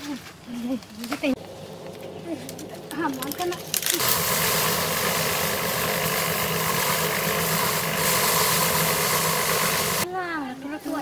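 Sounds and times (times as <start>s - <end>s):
thresher drum humming and rushing: 1.4s - 10.0s.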